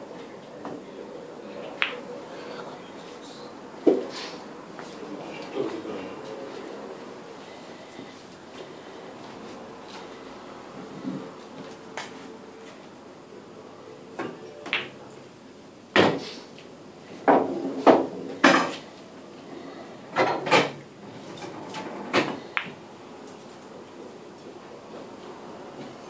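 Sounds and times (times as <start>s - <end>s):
pool balls clacking: 14.2s - 15.0s, 17.2s - 18.8s.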